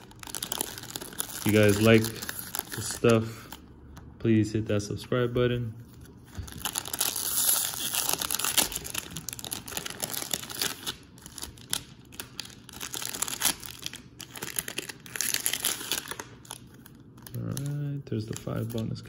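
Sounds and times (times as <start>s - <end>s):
foil packs rustling: 0.0s - 3.6s, 6.4s - 16.6s
plastic wrapper crinkling and tearing: 0.0s - 3.7s, 6.0s - 19.0s.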